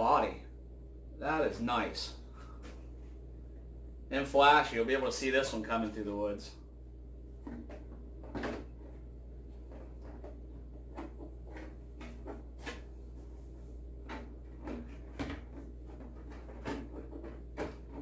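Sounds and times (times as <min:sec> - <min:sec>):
low room hum: 0:00.0 - 0:18.0
plastic knocks and clicks: 0:14.1 - 0:18.0.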